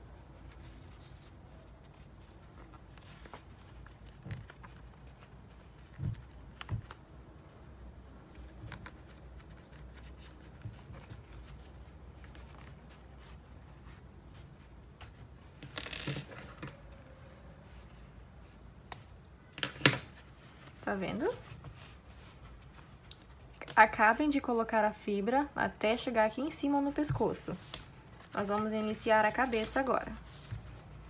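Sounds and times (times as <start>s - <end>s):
hands handling crochet: 26.4s - 31.0s.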